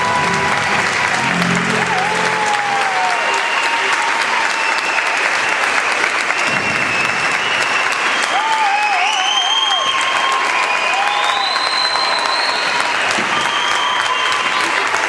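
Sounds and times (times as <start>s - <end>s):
audience applauding: 0.0s - 15.0s
long whistles: 3.2s - 14.5s.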